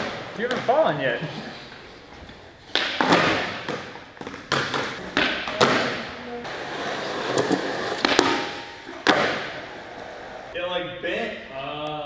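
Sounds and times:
skateboard wheels rolling: 0:06.4 - 0:10.6
skateboard clacks and thuds: 0:07.0 - 0:10.5.

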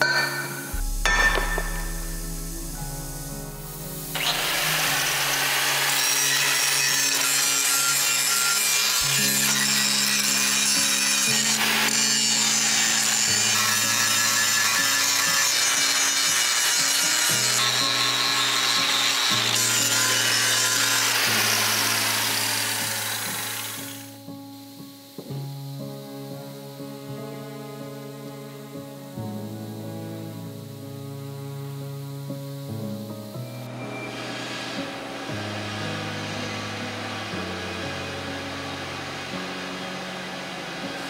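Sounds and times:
power tool working metal: 0:00.0 - 0:24.2, 0:33.7 - 0:41.0
background music: 0:00.0 - 0:41.0.

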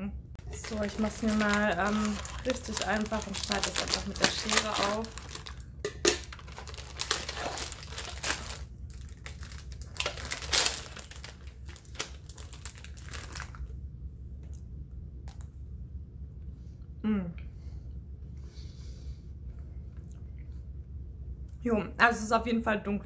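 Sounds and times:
plastic wrapper crinkling: 0:00.4 - 0:13.7.

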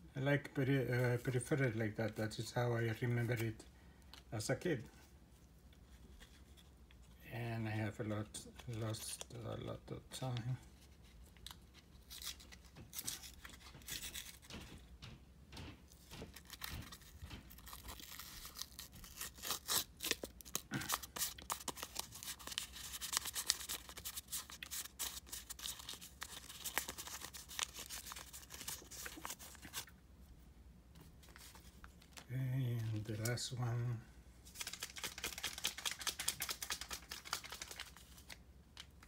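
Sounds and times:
plastic packet crinkling: 0:16.1 - 0:29.9, 0:34.5 - 0:39.0.

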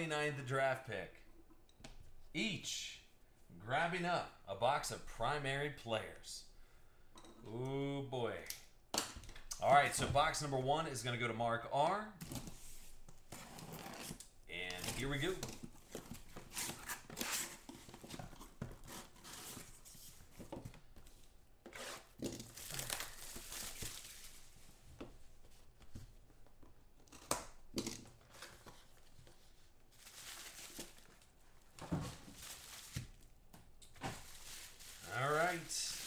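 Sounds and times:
cardboard and bubble wrap rustling: 0:12.4 - 0:26.4, 0:28.2 - 0:36.0.

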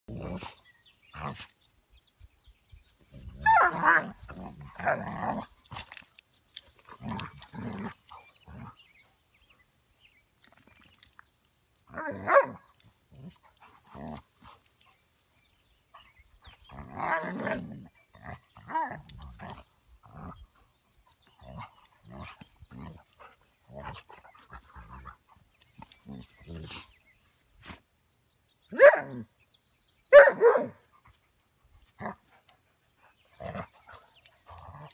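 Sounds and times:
dogs growling: 0:03.2 - 0:09.0, 0:13.1 - 0:14.7, 0:16.5 - 0:26.9, 0:33.3 - 0:34.9
dogs barking: 0:12.0 - 0:12.6, 0:28.7 - 0:29.2, 0:30.1 - 0:30.8.

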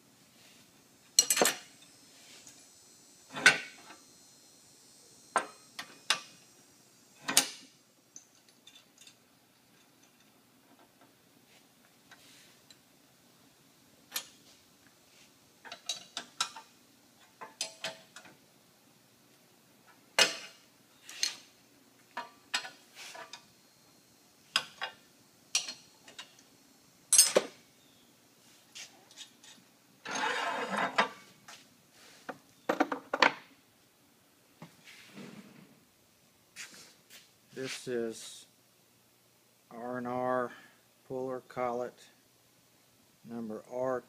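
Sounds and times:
metal scraping rub: 0:30.0 - 0:31.0.

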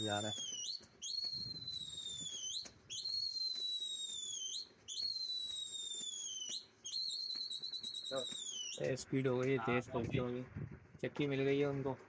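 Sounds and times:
shrill whistle blasts: 0:00.0 - 0:09.0.

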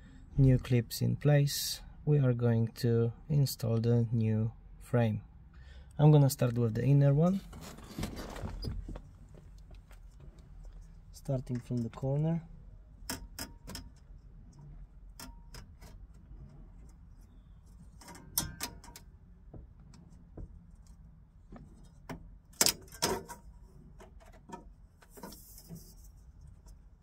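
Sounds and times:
scraping rustle: 0:07.3 - 0:12.0.

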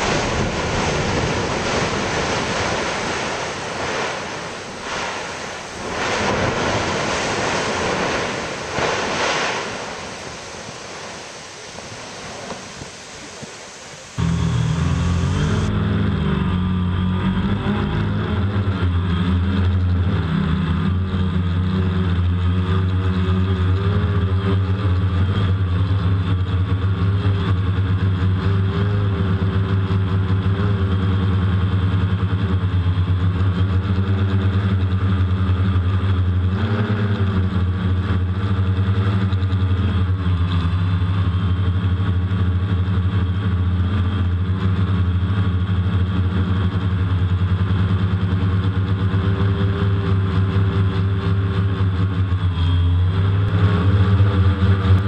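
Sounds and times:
drone propellers humming: 0:00.0 - 0:55.0.

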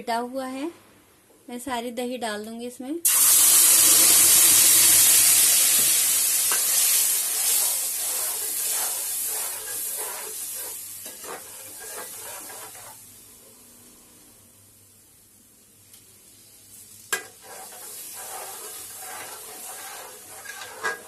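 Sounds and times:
food sizzling in hot oil: 0:03.0 - 0:13.2, 0:16.2 - 0:21.0
metal spoon scraping a pan: 0:06.5 - 0:13.0, 0:17.1 - 0:21.0.

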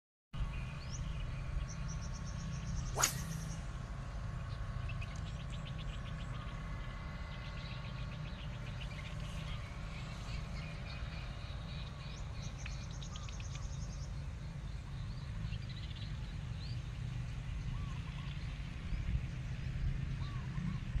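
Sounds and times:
small birds chirping: 0:00.4 - 0:03.8, 0:04.4 - 0:18.5
low steady rumble: 0:00.4 - 0:21.0
short swish: 0:02.9 - 0:03.6.

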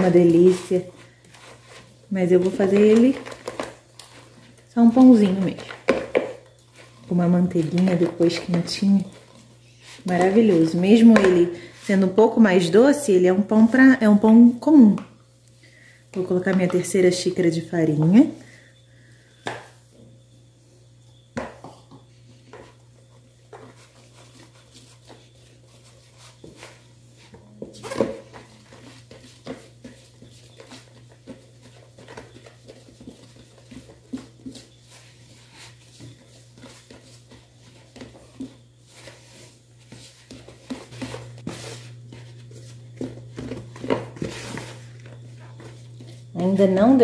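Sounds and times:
steady low hum: 0:00.0 - 0:47.0
utensil knocking and scraping bowl: 0:04.9 - 0:11.6.

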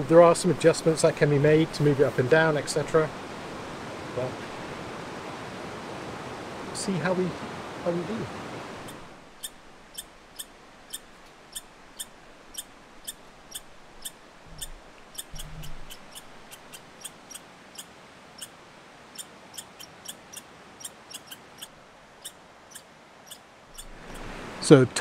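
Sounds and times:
steady background hiss: 0:00.0 - 0:25.0
squirrel chirping: 0:08.8 - 0:24.3.

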